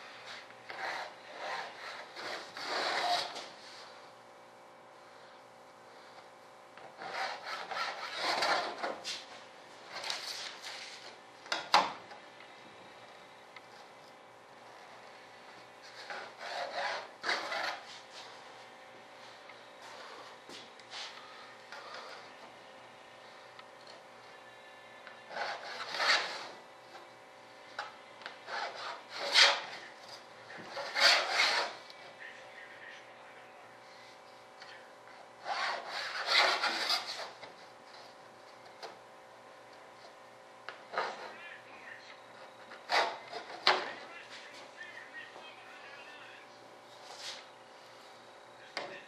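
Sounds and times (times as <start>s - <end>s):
pencil and straightedge scraping: 0.2s - 3.8s, 6.8s - 9.2s, 15.9s - 18.3s, 20.9s - 22.4s, 25.2s - 26.6s, 27.8s - 31.9s, 35.4s - 37.6s, 42.6s - 43.9s
pencil scratching: 7.0s - 8.9s, 30.7s - 31.8s.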